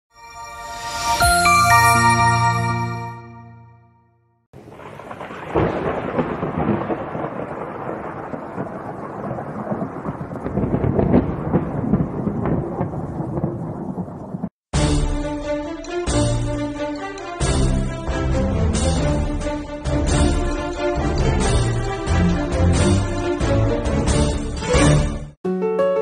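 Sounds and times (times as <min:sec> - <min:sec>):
steady rain: 0:04.6 - 0:14.5
thunder rumbling: 0:04.6 - 0:14.5.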